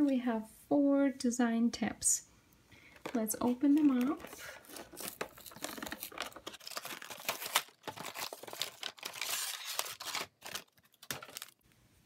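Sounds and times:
plastic blister packaging crinkling: 3.0s - 11.6s
cardboard tearing: 4.6s - 11.6s.

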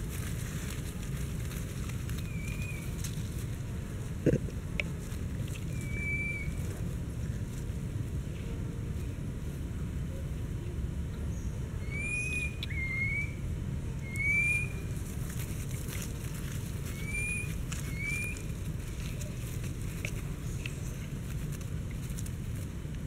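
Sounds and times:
faint clicks and rustles: 0.0s - 9.6s, 14.9s - 23.0s
low microphone noise: 0.0s - 23.0s
whistled animal calls: 5.7s - 6.6s, 11.8s - 13.4s, 14.0s - 14.9s, 16.9s - 18.5s.

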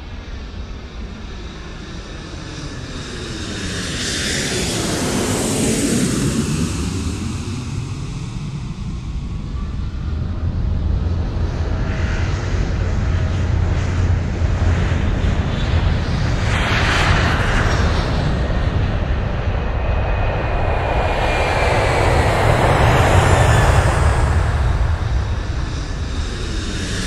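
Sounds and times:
jet flying past: 11.4s - 27.0s.

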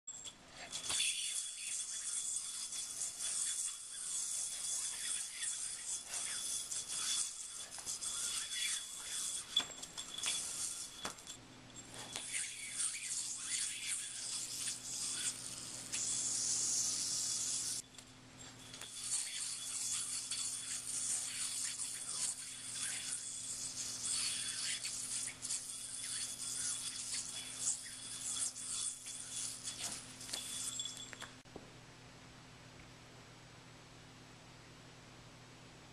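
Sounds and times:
yo-yo string whirring: 0.1s - 31.4s
faint low hum: 0.1s - 35.9s.

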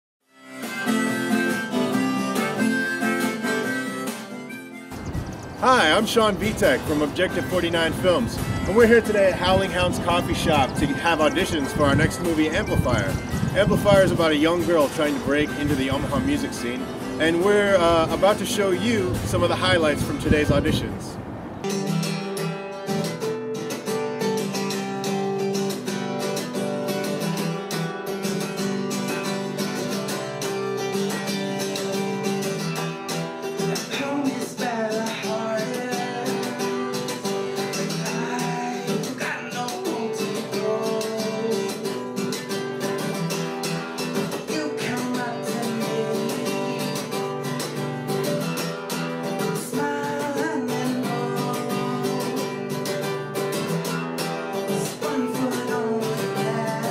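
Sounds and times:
acoustic guitar strummed: 0.3s - 56.9s
man singing: 5.6s - 20.1s, 33.8s - 42.3s, 44.2s - 47.6s, 49.4s - 52.8s, 54.6s - 56.9s.

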